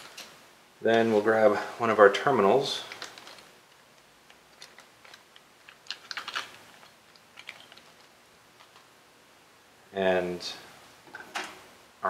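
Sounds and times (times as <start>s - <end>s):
small parts clicking: 2.9s - 8.9s.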